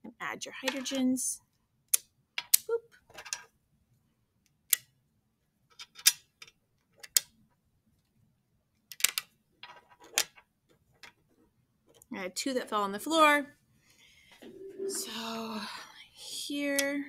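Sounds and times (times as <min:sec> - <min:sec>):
plastic model pieces clicking: 0:05.7 - 0:07.3, 0:08.9 - 0:10.4.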